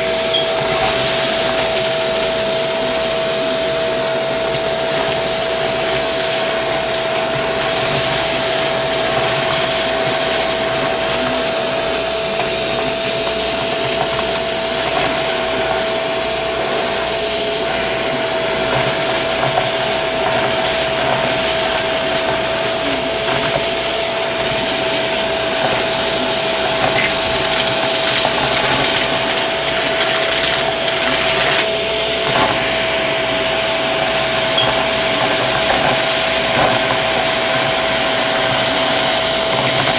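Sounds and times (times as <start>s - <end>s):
debris crunching in vacuum: 0.0s - 39.9s
vacuum cleaner motor whine: 0.0s - 39.9s.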